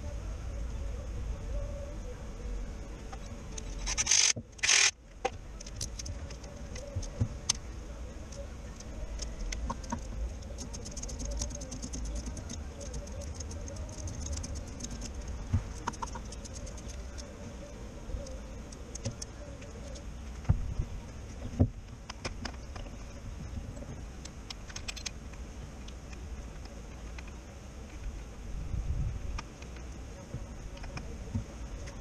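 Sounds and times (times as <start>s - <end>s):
hand ratchet clicking: 3.9s - 4.9s
power tool spinning on bolt: 4.0s - 4.9s.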